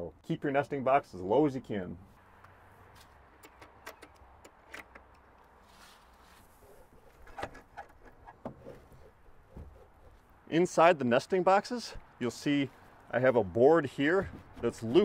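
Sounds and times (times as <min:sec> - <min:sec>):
metal latch clicks: 0:03.4 - 0:05.4.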